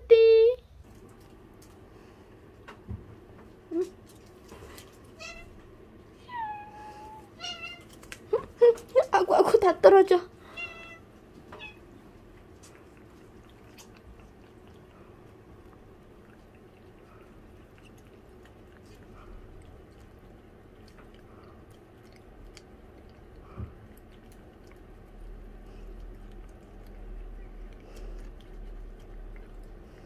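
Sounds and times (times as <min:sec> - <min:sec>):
low steady hum: 0:00.0 - 0:30.0
cats licking: 0:10.3 - 0:30.0.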